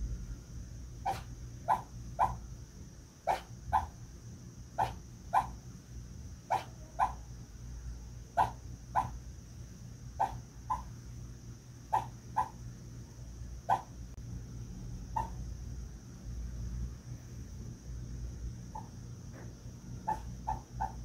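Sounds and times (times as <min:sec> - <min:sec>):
dog whimpering yelps: 0:01.1 - 0:02.4, 0:03.3 - 0:03.9, 0:04.8 - 0:05.5, 0:06.5 - 0:07.2, 0:08.4 - 0:09.2, 0:10.2 - 0:10.9, 0:11.9 - 0:12.6, 0:15.2 - 0:15.4, 0:20.1 - 0:21.0.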